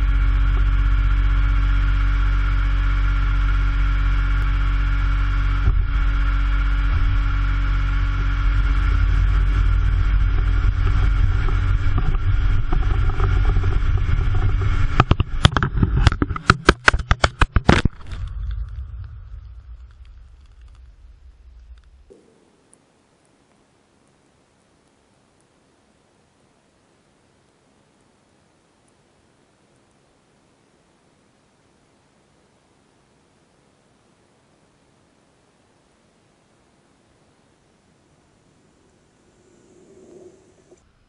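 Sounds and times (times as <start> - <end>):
vehicle engine and road drone: 0.0 - 23.6, 37.2 - 41.0
camera clattering onto road: 14.3 - 18.7.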